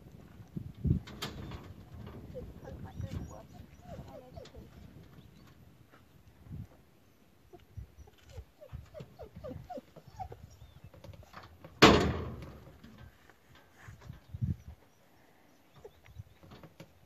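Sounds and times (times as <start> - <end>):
loud thump: 11.8 - 12.6.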